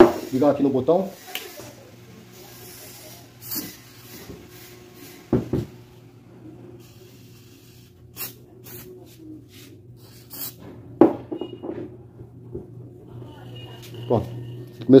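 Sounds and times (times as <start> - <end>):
oil spray hissing: 0.0 - 5.5, 6.8 - 8.9
fan motor humming: 0.0 - 11.0.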